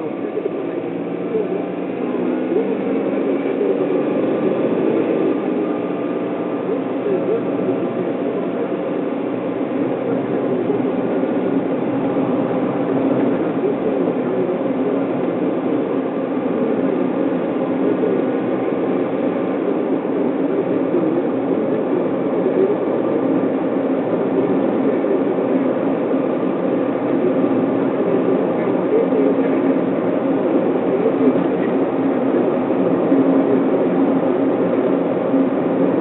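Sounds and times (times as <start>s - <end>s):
car cabin road and engine noise: 0.0s - 36.0s.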